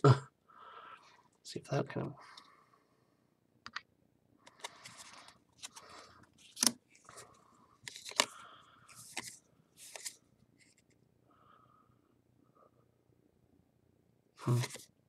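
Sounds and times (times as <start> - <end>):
cards sliding swishes: 4.5 - 7.2, 7.8 - 8.3, 8.9 - 10.2, 14.4 - 14.8.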